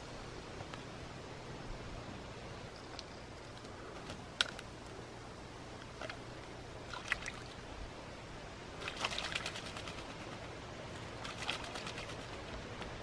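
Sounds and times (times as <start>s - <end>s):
bird splashing in water: 6.8s - 7.6s, 8.8s - 12.6s.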